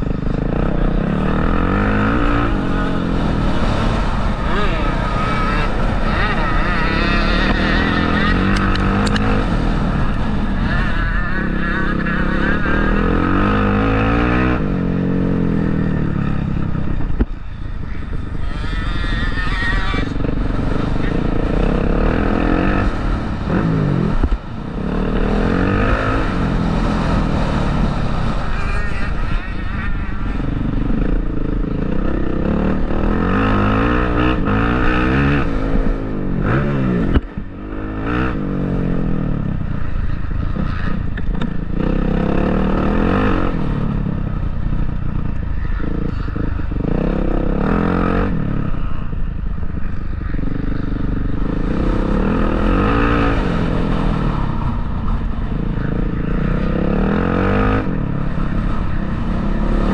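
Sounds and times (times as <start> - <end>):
motocross bike engines revving: 0.0 - 59.9.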